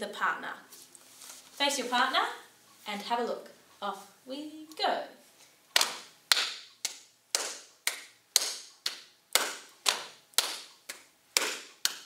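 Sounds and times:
hand claps and pats: 5.8 - 12.0.

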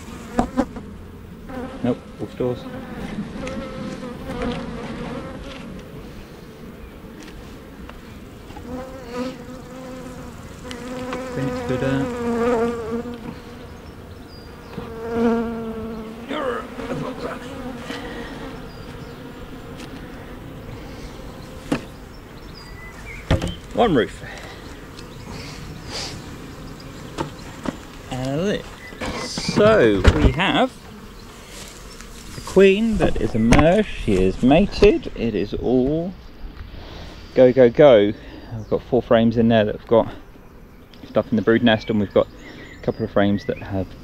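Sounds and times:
bees buzzing: 0.0 - 37.4.

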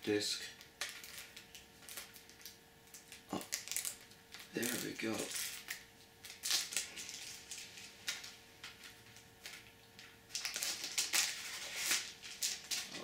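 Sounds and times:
plastic shrink-wrap crinkling: 0.6 - 13.0.

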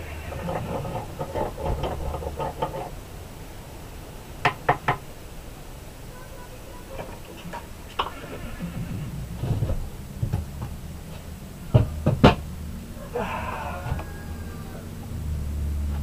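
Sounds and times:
knocks and clunks: 0.0 - 2.9, 6.9 - 12.7, 13.8 - 14.1
low steady hum: 0.0 - 16.0.

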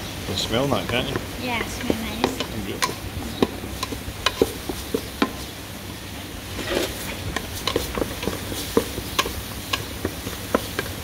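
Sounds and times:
wooden spatula scraping a pot: 6.4 - 11.0.

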